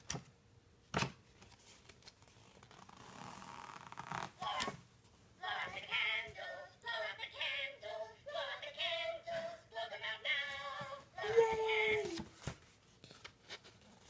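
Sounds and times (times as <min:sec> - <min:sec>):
tinny song from greeting card: 0:04.4 - 0:12.6.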